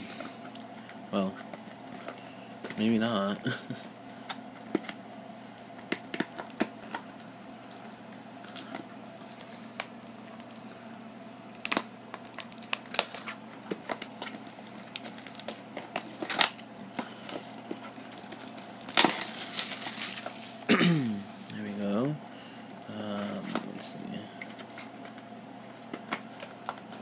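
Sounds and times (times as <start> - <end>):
plastic wrapping crinkling: 5.6 - 20.7.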